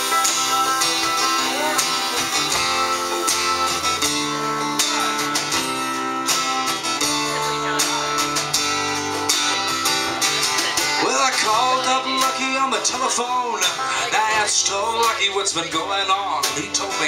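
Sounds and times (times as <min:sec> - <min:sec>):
drums and cymbals: 0:00.0 - 0:13.0
guitars strumming and picking: 0:00.0 - 0:17.0.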